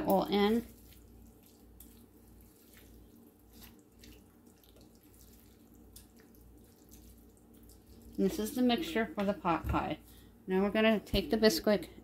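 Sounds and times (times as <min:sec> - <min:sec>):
wooden spoon stirring thick filling: 0:00.0 - 0:10.2.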